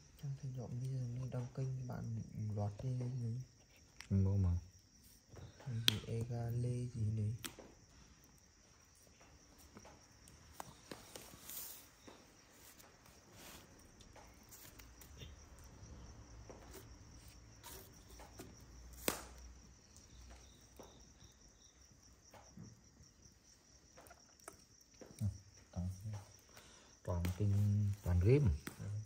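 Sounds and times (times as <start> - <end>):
crickets chirping: 0.0 - 29.0.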